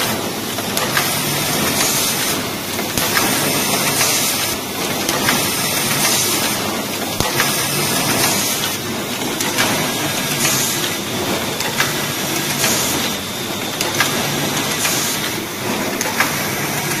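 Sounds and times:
soldering machine running: 0:00.0 - 0:17.0
sharp mechanical clicks: 0:13.8 - 0:15.4.

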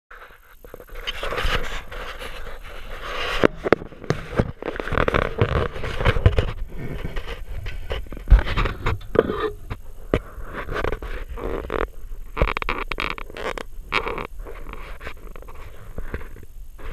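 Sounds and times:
phone handling scraping and rustling: 0:00.7 - 0:13.5.

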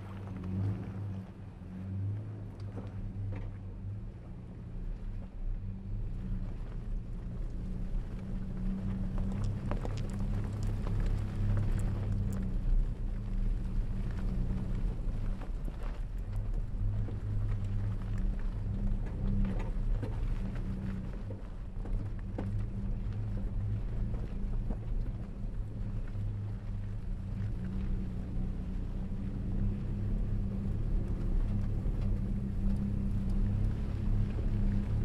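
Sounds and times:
off-road vehicle engine running: 0:00.0 - 0:35.0.

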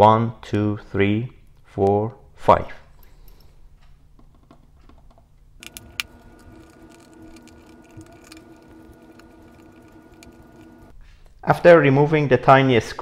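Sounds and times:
faint steady hum: 0:05.4 - 0:10.9.

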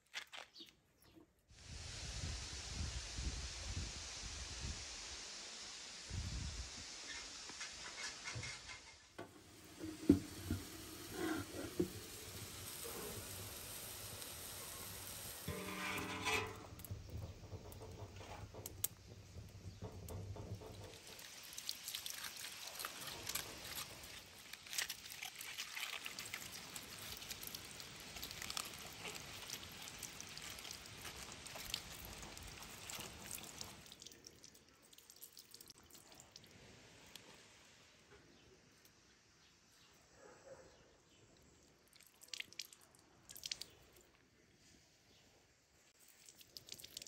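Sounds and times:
water splashing on stone paving: 0:18.6 - 0:36.4, 0:42.0 - 0:43.9, 0:46.0 - 0:47.0.

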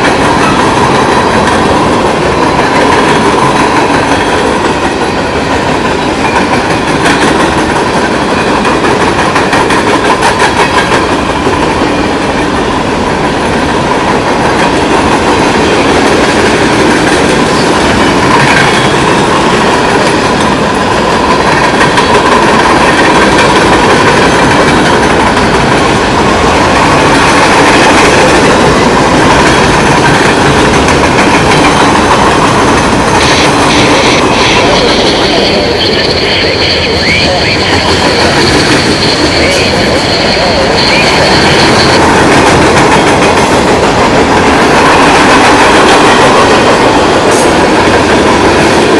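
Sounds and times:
clickety-clack over rail joints: 0:00.0 - 0:36.3, 0:37.3 - 0:48.9
steel wheels rumbling on rail: 0:00.0 - 0:48.9.

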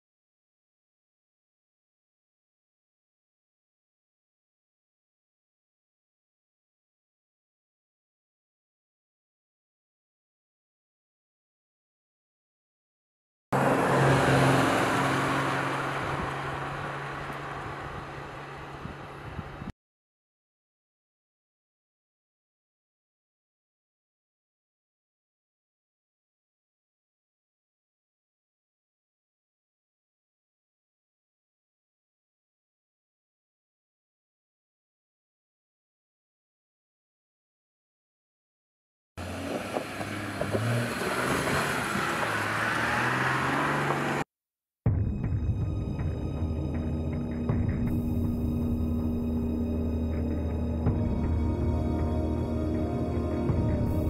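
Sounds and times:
truck engine hum: 0:13.6 - 0:19.7, 0:39.2 - 0:44.2, 0:45.1 - 0:54.0
tyre noise on road: 0:13.6 - 0:19.7, 0:39.2 - 0:44.3.

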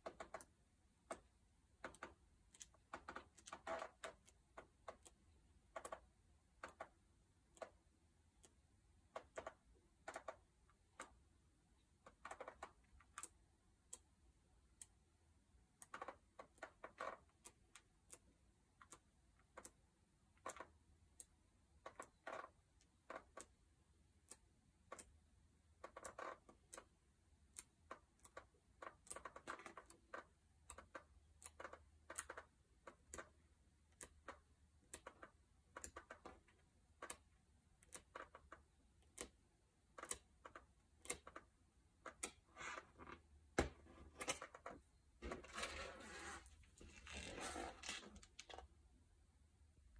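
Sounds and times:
thick book pages turning: 0:45.2 - 0:48.7.

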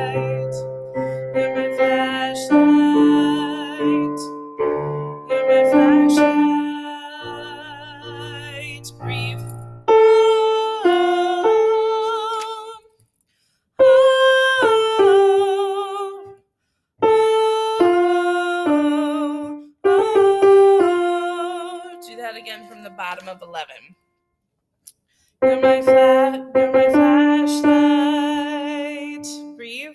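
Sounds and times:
piano notes: 0:00.0 - 0:12.8, 0:17.0 - 0:23.8, 0:25.4 - 0:29.9
woman singing wordless notes: 0:00.0 - 0:12.9, 0:13.8 - 0:16.4, 0:17.0 - 0:23.9, 0:25.4 - 0:29.9.

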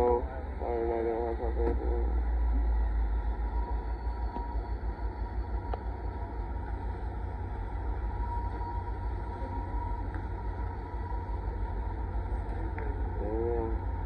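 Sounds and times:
freight train rumble: 0:00.0 - 0:14.0.

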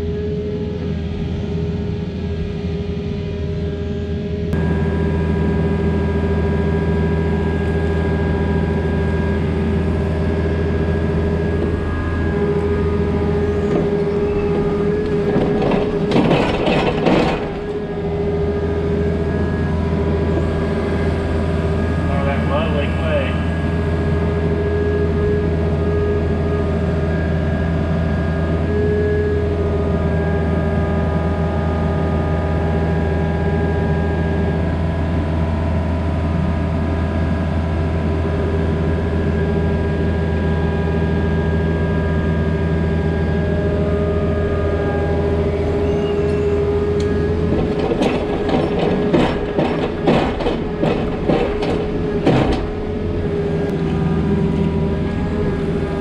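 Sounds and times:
excavator diesel engine running: 0:00.0 - 0:56.0
clanks and knocks: 0:11.6 - 0:18.3, 0:47.0 - 0:53.7.

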